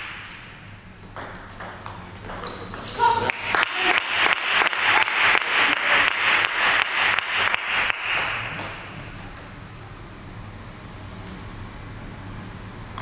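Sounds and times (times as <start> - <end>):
spectators clapping: 3.2 - 9.2.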